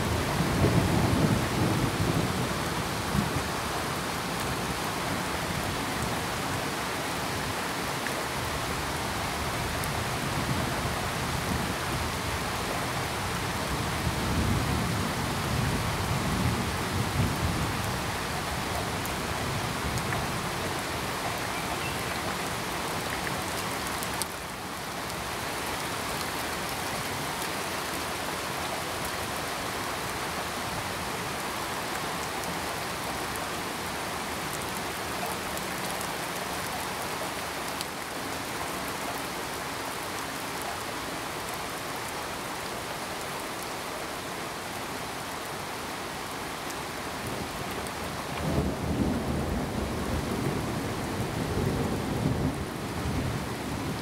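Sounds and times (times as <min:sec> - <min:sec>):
heavy rain falling: 0:00.0 - 0:54.0
low rumble of thunder: 0:48.3 - 0:54.0.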